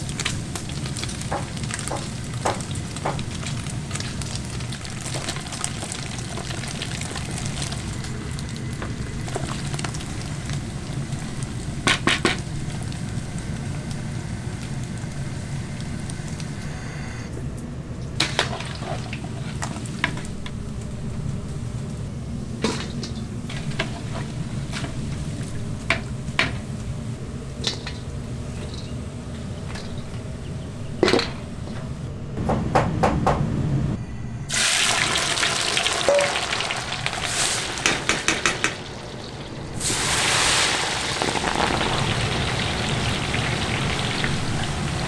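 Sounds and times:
beef sizzling on grill: 0.0 - 16.7, 34.5 - 45.0.

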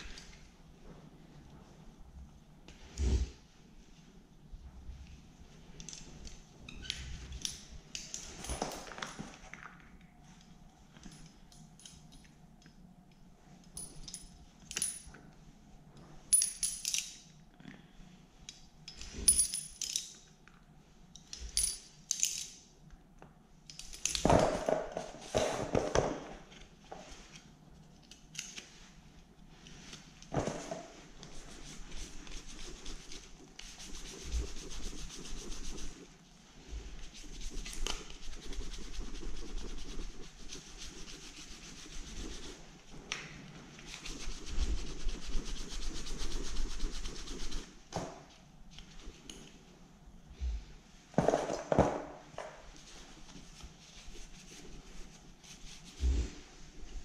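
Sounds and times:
small metal parts clinking: 16.3 - 17.4, 18.9 - 20.4, 21.3 - 22.7
brush scrubbing metal plate: 31.3 - 36.1.

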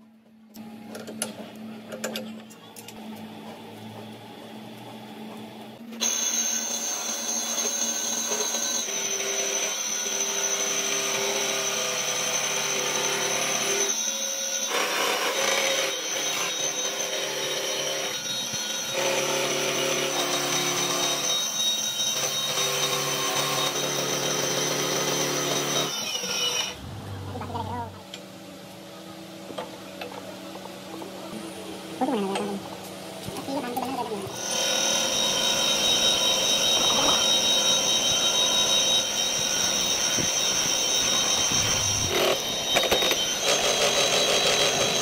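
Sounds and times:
quiet shop sounds: 0.0 - 45.0
high-pitched machine whine: 5.8 - 45.0
milling machine cutting steel: 6.0 - 27.7, 34.3 - 45.0.

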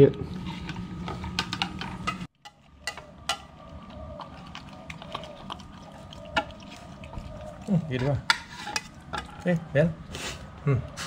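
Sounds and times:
puppy eating from food bowl: 1.8 - 10.1.

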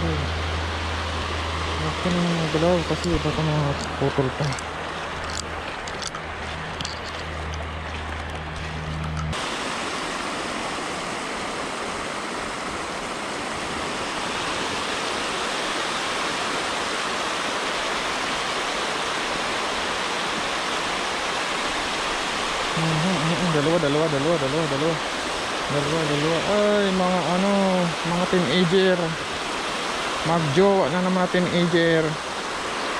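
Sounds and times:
low steady hum: 0.0 - 13.9
water rushing over weir: 0.0 - 32.9.

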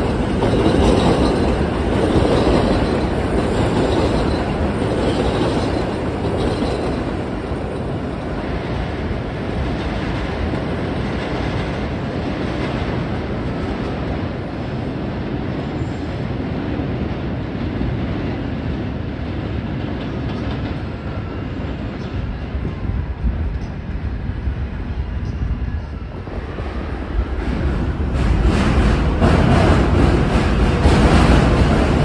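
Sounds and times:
trains on elevated steel track: 0.0 - 32.0.

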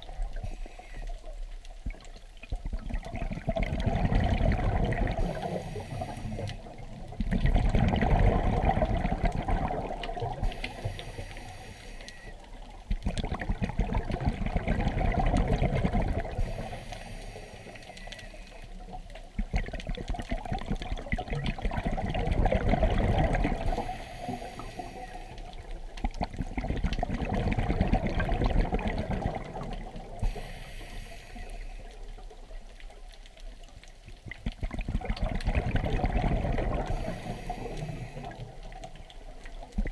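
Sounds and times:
regulator hiss on inhale: 0.3 - 1.4, 5.2 - 6.8, 10.4 - 12.4, 16.3 - 19.0, 23.6 - 25.8, 30.0 - 32.6, 36.7 - 38.8
bubbling on exhale: 2.7 - 11.7, 13.0 - 17.5, 19.4 - 31.9, 34.3 - 39.1.

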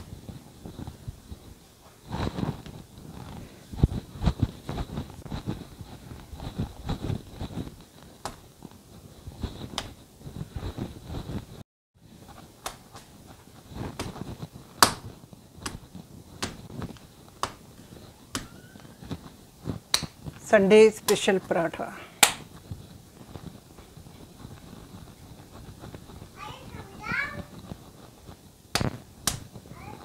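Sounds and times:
soft thuds of dough kneading: 0.0 - 11.6, 12.2 - 30.0
dough slapped between palms: 8.2 - 8.5, 9.5 - 10.0, 12.5 - 20.4, 22.2 - 22.6, 28.7 - 29.6.

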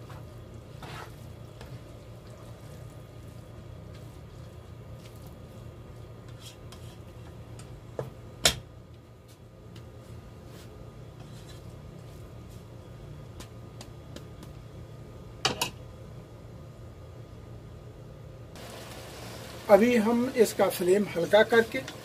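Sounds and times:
spoon scraping rice: 0.0 - 5.6, 6.2 - 7.3
steady low hum: 0.0 - 22.0.

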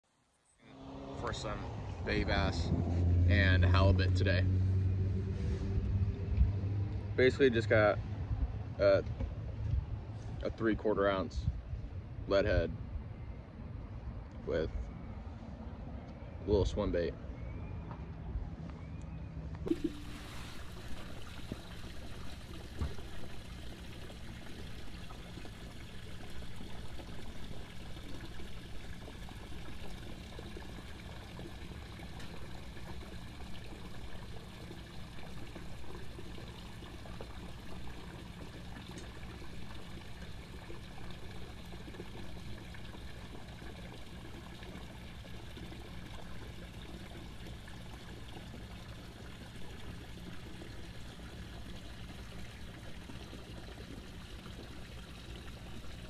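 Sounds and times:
water lapping against dock: 19.7 - 56.0.

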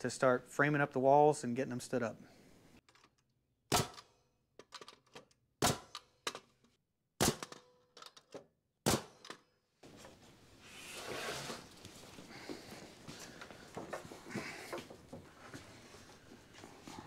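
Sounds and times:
nail gun firing: 3.7 - 4.1, 5.6 - 6.1, 7.2 - 7.7, 8.8 - 9.4
wall scraping on concrete floor: 10.6 - 12.0.

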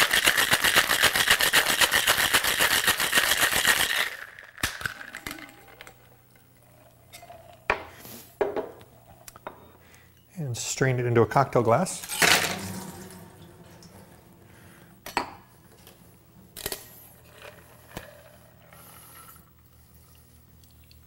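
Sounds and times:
ice rattling in cocktail shaker: 0.0 - 5.9.

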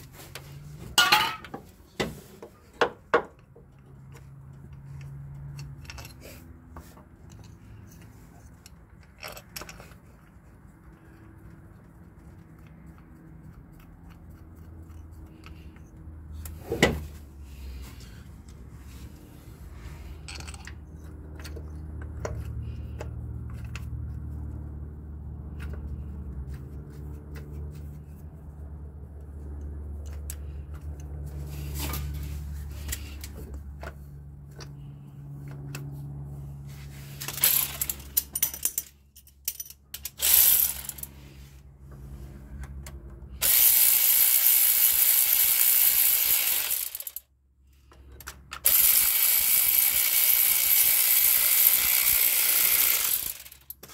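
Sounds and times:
hand ratchet clicking: 37.2 - 38.9, 39.5 - 41.1, 43.4 - 47.2, 48.6 - 53.8.

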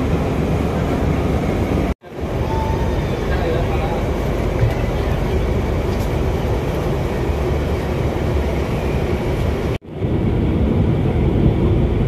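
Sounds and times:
train carriage rumble: 0.0 - 12.0.

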